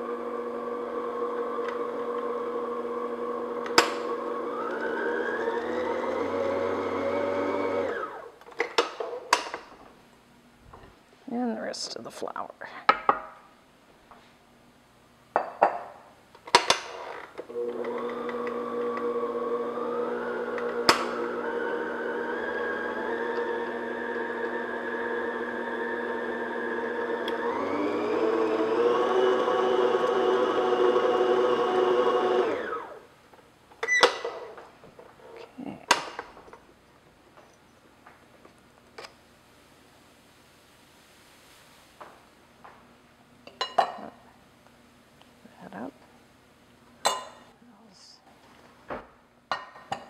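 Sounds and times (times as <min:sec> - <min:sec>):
mixer motor running: 0:00.0 - 0:08.3, 0:17.5 - 0:33.0.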